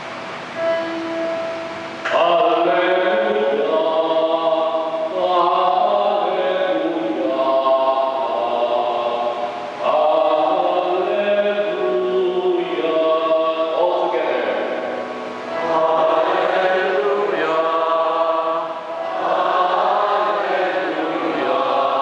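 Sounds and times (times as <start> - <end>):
held note: 0.1 - 3.7, 14.7 - 21.6
man chanting over sound system: 2.0 - 22.0.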